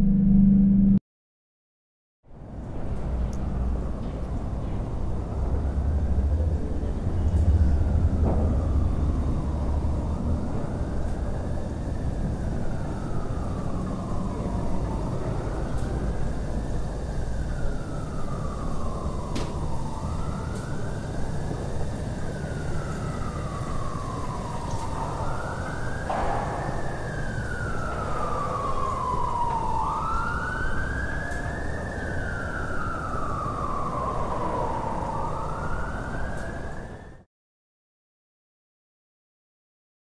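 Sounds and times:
low rumble: 0.0 - 1.0
wailing siren: 3.3 - 37.3.

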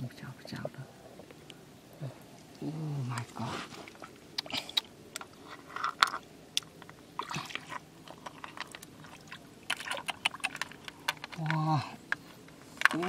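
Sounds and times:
water swishing and splashing: 7.2 - 10.6.

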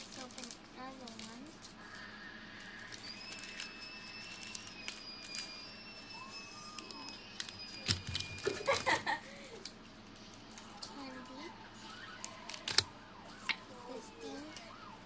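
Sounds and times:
faint high-pitched whine: 0.0 - 15.0
packets clicking and rustling: 2.8 - 9.8, 11.8 - 13.6.

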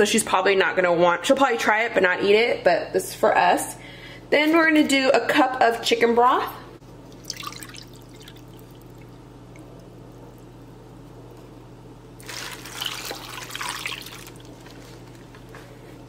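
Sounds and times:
steady low hum: 2.1 - 16.0
broth trickling and dripping: 6.9 - 14.8.

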